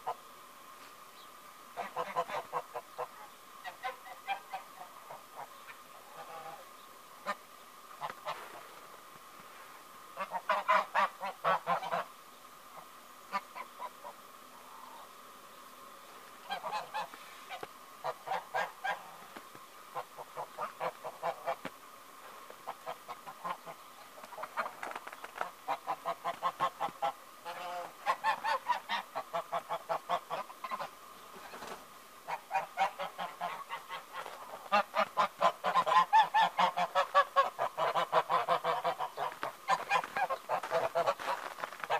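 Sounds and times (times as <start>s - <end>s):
geese honking: 1.8s - 7.4s, 10.2s - 12.1s, 16.4s - 19.3s, 25.4s - 31.0s, 32.2s - 41.9s.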